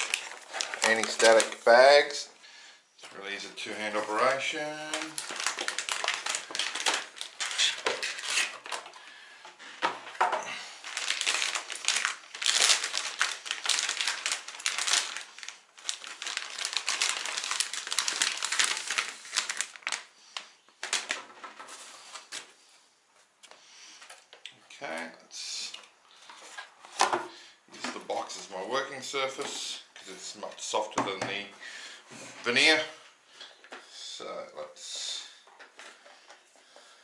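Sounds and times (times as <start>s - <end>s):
plastic bag crinkling: 0.0s - 2.2s, 3.8s - 9.1s, 10.3s - 22.5s.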